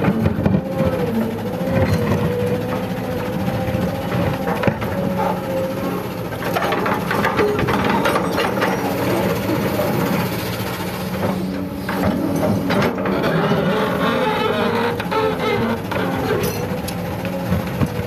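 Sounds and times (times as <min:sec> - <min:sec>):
excavator diesel engine under load: 0:00.0 - 0:18.0
hydraulic whine: 0:00.0 - 0:18.0.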